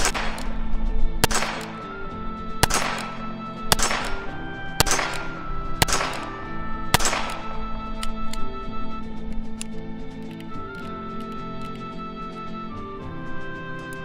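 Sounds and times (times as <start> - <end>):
revolver shots with echo: 0.0 - 2.0, 2.6 - 7.8.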